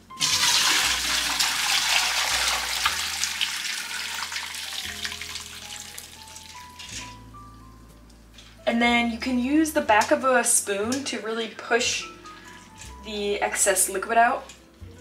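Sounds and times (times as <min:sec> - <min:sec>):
liquid pouring into metal bowl: 0:00.2 - 0:07.2.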